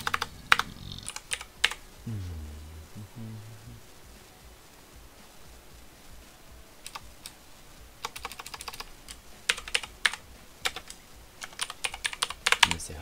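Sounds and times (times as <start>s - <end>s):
typing on computer keyboard: 8.0s - 8.9s, 9.5s - 12.7s.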